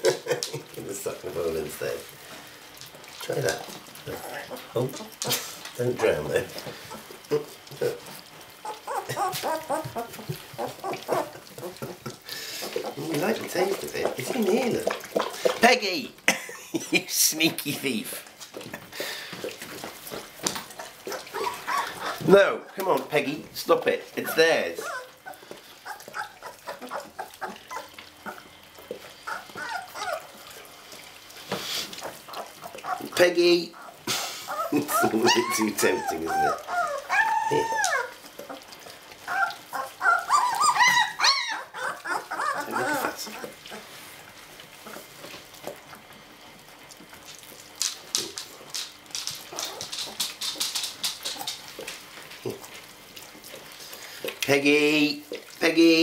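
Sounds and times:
puppies lapping milk from a dish: 0.0 - 56.0
puppies squeaking and whimpering: 3.1 - 15.2, 19.4 - 23.0, 24.0 - 31.1, 31.7 - 45.6, 49.0 - 51.9.

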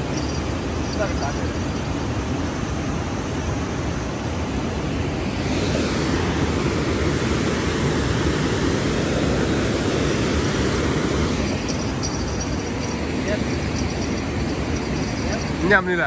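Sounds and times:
river water rushing over rocks: 6.0 - 15.8.

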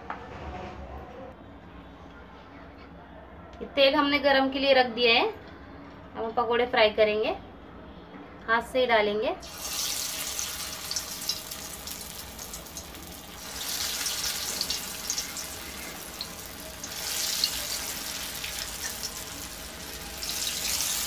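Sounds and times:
batter deep-frying in oil: 9.4 - 21.0.

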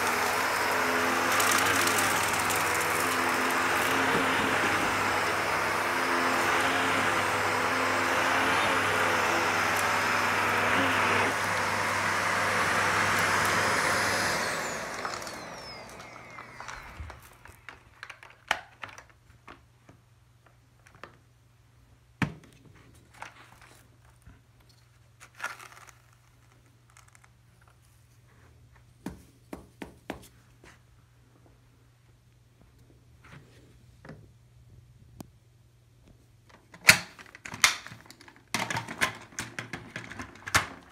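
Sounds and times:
vacuum motor whining down: 0.0 - 17.8
vacuum cleaner running: 0.0 - 17.9.

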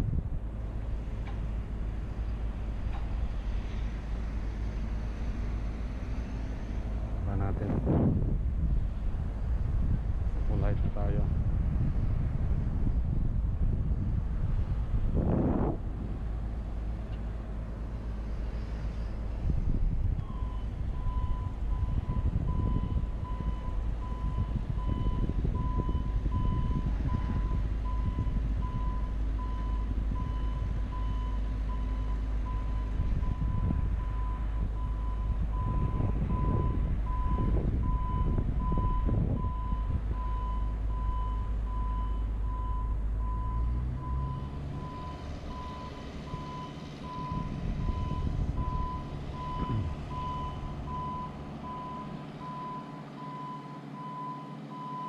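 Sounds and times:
wind rumble on microphone: 0.0 - 55.0
low hum rising in pitch: 32.5 - 52.0.

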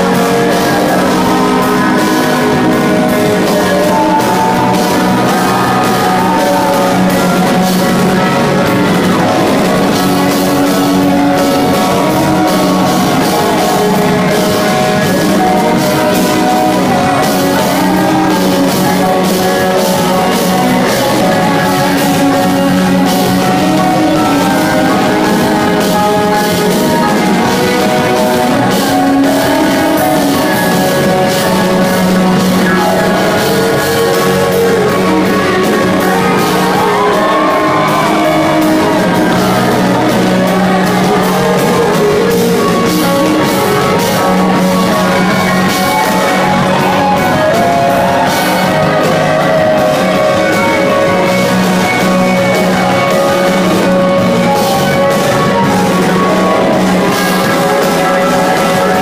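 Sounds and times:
live rock band: 0.0 - 59.0
man singing: 0.0 - 59.0.

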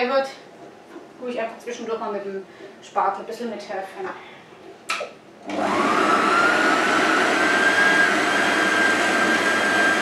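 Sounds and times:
food processor motor whine: 5.4 - 10.0.

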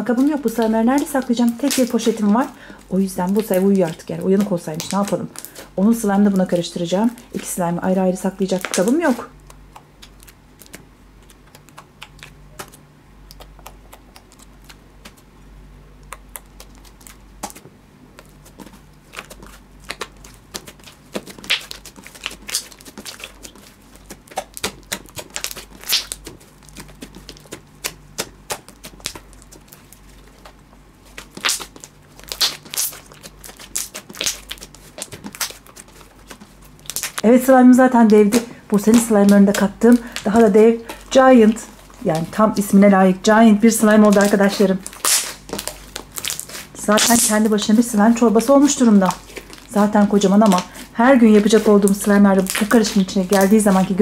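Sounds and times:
slime squeezed with wet pops: 8.6 - 15.3, 16.0 - 17.6, 18.2 - 37.2, 43.8 - 47.4, 49.1 - 53.9.

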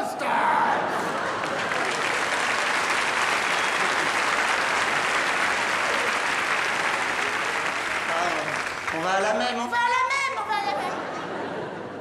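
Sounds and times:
audience laughing: 0.4 - 8.6, 10.5 - 12.0
audience applauding: 0.8 - 9.8.

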